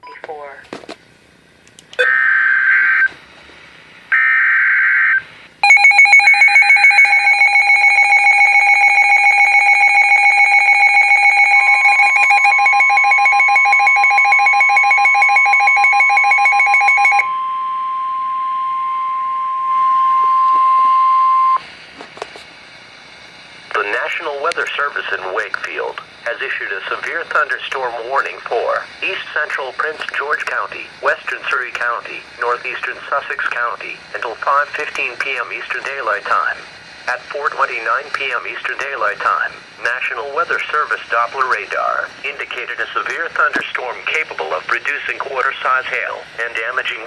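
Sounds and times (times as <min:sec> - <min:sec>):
screeching data bursts: 0:02.0 - 0:03.2
steady warning alarm tone: 0:04.1 - 0:21.6
rapid pulsing alarm beep: 0:04.2 - 0:21.6.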